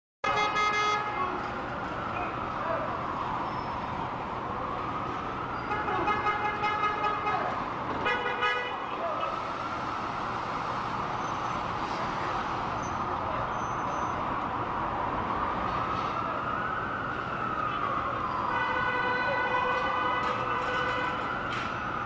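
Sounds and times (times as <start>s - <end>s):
city traffic rushing: 0.2s - 22.0s
siren wailing: 0.7s - 7.8s, 13.8s - 22.0s.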